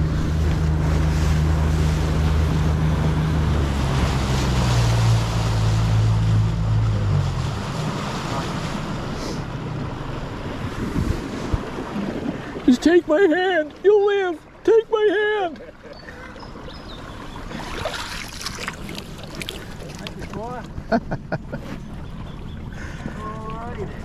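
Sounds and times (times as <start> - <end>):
boat engine running: 0.0 - 24.0
water rushing along hull: 0.0 - 24.0
wind on microphone: 10.5 - 12.8.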